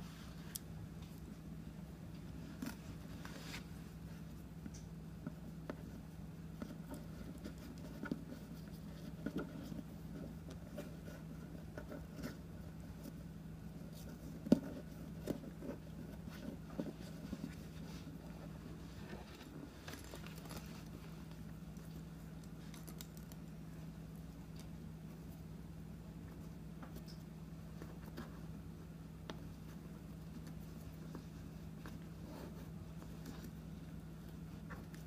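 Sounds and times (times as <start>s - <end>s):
steady low hum: 0.0s - 35.0s
cord rustling and clicking: 13.9s - 23.5s.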